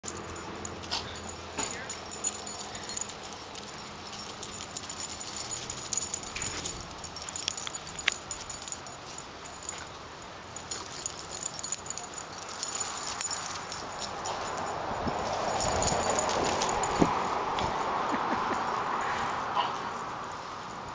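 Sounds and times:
puppies scuffling on concrete: 0:00.0 - 0:19.4.

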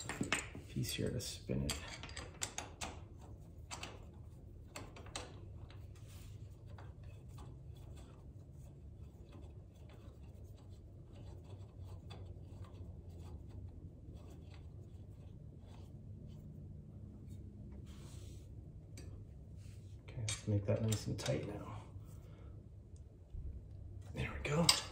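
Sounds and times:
steady low hum: 0:00.0 - 0:24.9.

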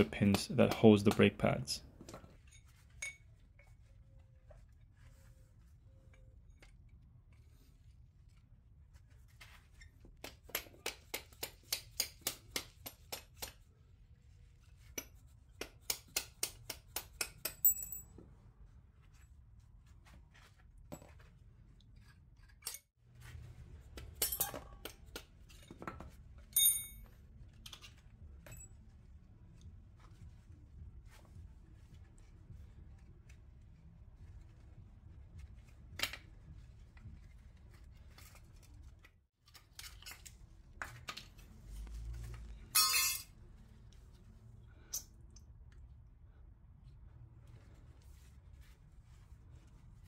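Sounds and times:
ringing metallic clink: 0:42.8 - 0:43.3.

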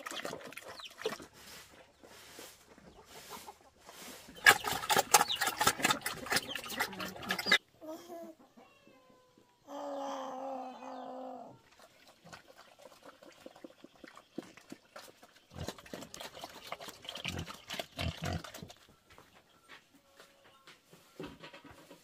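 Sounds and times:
knocks and rustling: 0:20.5 - 0:22.0.

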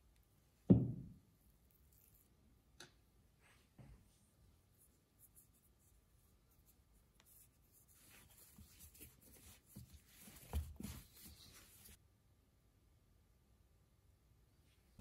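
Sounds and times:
hands kneading dough: 0:04.7 - 0:12.0.

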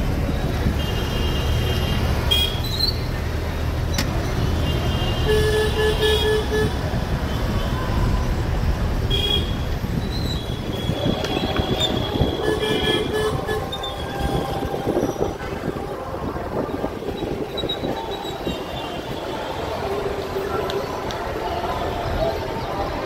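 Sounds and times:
traffic rumble of engines and tyres: 0:00.0 - 0:23.0
vehicle horns tooting: 0:00.7 - 0:03.0, 0:04.5 - 0:08.2, 0:09.0 - 0:16.0.

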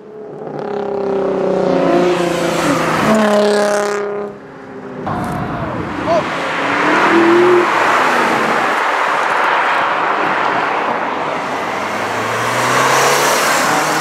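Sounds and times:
tyre and road noise: 0:00.0 - 0:14.0
car engine revving: 0:05.0 - 0:10.4, 0:11.4 - 0:14.0
car engine passing: 0:05.0 - 0:14.0.

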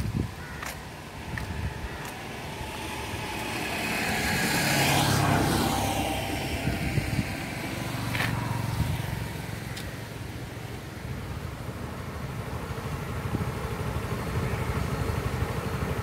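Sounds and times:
motor vehicle passing by: 0:00.0 - 0:16.0.

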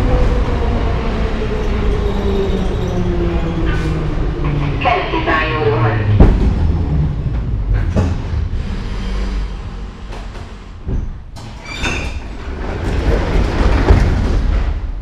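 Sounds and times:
train rumbling while braking: 0:00.0 - 0:15.0
sliding doors opening with bang: 0:06.2 - 0:15.0.

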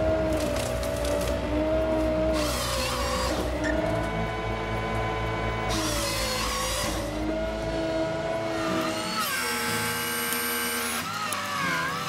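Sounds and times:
tractor engine and hydraulics: 0:00.0 - 0:12.0
chainsaw cutting through tree stem: 0:02.3 - 0:03.7, 0:08.4 - 0:12.0.

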